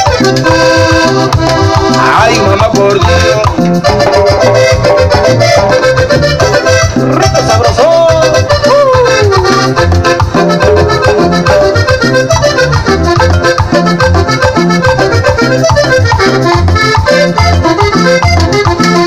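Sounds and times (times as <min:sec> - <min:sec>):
accordion melody: 0:00.0 - 0:19.0
live band playing: 0:00.0 - 0:19.0.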